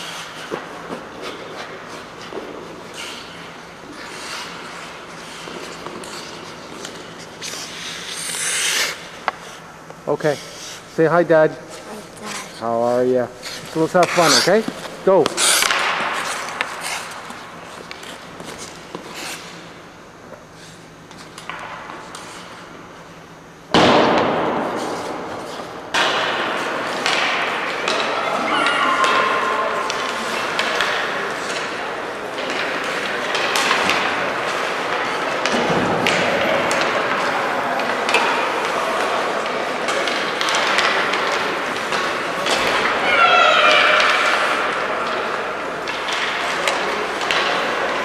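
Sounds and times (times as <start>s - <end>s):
skates scraping on ice: 0.0s - 9.6s, 13.4s - 19.6s
hockey sticks and puck knocking: 13.4s - 19.6s, 23.8s - 28.2s, 28.9s - 48.0s
sudden loud noises: 42.4s - 45.5s.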